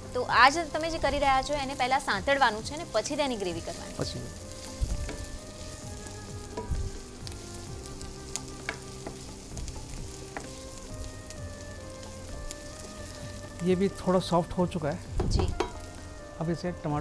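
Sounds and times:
vegetables sizzling in hot oil: 0.0 - 17.0
spoon stirring against pan: 4.5 - 7.5, 8.3 - 11.1.

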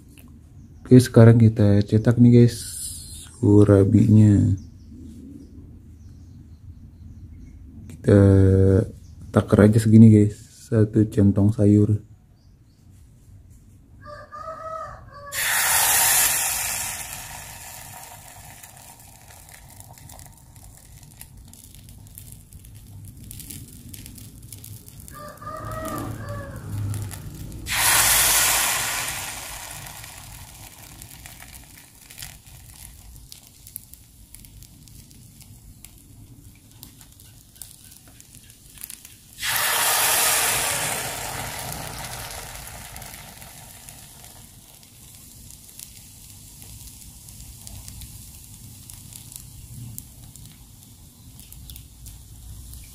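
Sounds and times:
rooster crowing: 14.0 - 15.6, 25.1 - 27.3
batter sizzling in hot mold: 15.3 - 52.9.

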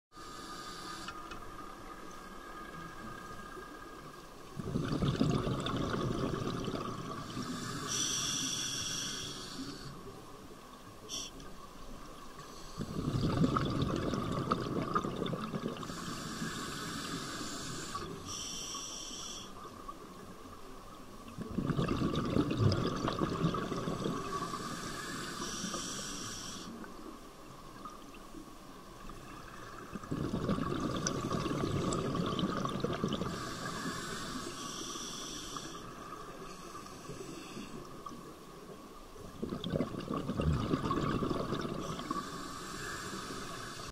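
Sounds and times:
regulator inhalation hiss: 0.2 - 1.5, 7.2 - 10.0, 11.0 - 11.4, 15.8 - 19.6, 24.2 - 26.8, 33.2 - 37.8, 41.9 - 43.9
exhaled bubbles rushing: 4.6 - 7.3, 12.8 - 15.9, 21.4 - 24.4, 29.1 - 33.4, 39.3 - 42.2.

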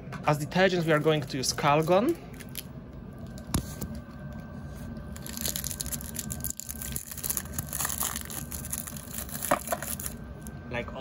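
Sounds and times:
steady low hum: 0.0 - 11.0
plastic wrapper crinkling: 5.0 - 10.2.

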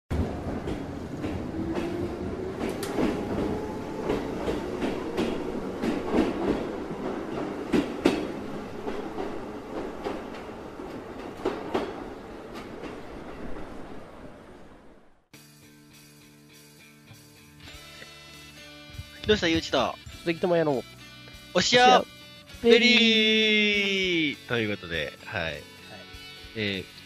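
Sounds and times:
train rumble: 0.1 - 15.3
train wheels clicking on rail joints: 0.2 - 13.6.

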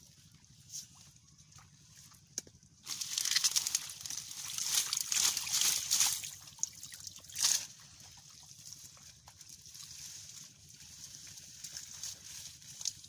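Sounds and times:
hands splashing in muddy water: 2.8 - 10.0.

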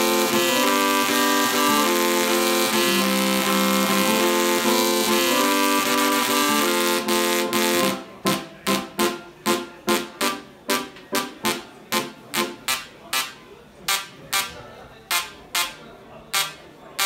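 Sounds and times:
tesla coil buzzing melody: 0.0 - 10.4.

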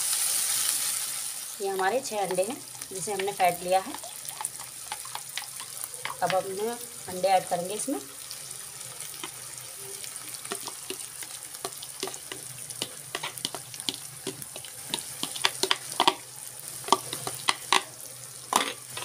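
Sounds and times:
eggs sizzling in hot oil: 0.0 - 19.0
spoon scraping plastic bowl: 3.8 - 6.4, 10.5 - 16.2, 16.8 - 17.9, 18.6 - 19.0.

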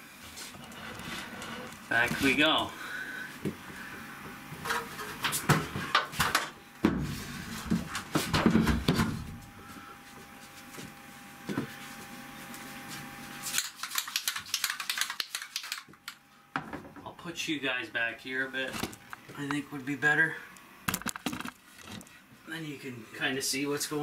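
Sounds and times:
faint steady hum: 0.0 - 24.0
objects knocking and clunking: 4.6 - 9.4, 16.6 - 17.1, 20.9 - 22.0.

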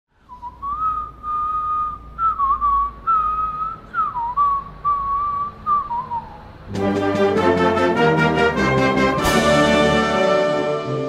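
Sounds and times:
man whistling: 0.2 - 6.6.

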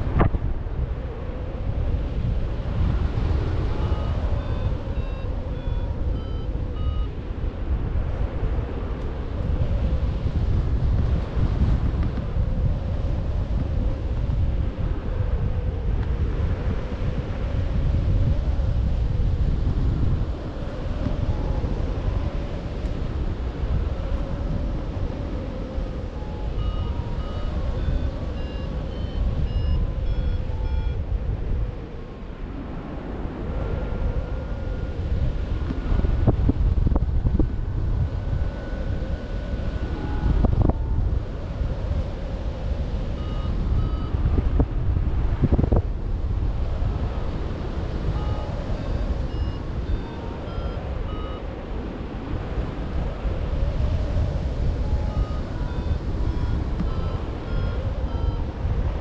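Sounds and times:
wind buffeting microphone: 0.0 - 59.0
variometer beeps: 3.6 - 7.3, 25.9 - 31.1, 34.1 - 35.2, 43.1 - 44.6, 47.9 - 51.9, 53.7 - 59.0.

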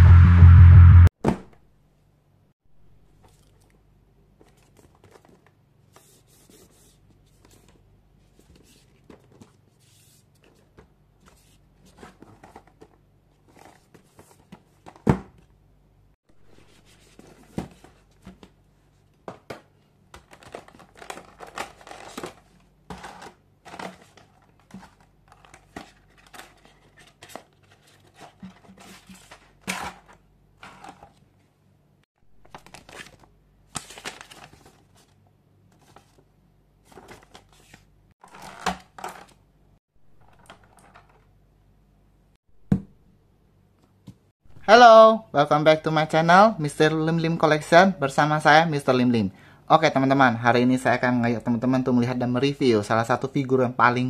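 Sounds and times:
cardboard and plastic rustling: 4.3 - 5.6, 7.2 - 15.5, 16.6 - 31.4, 32.4 - 39.4, 40.1 - 41.3.

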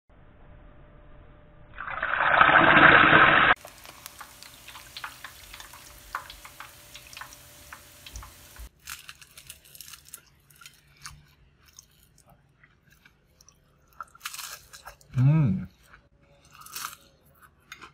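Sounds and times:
fish sizzling in hot oil: 3.5 - 9.2
crunching bites of fried fish: 8.2 - 12.3, 13.9 - 15.1.

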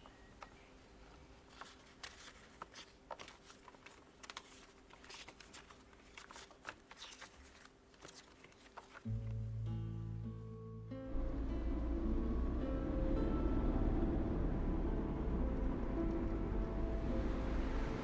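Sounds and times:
paper index cards flipping: 1.4 - 9.4.

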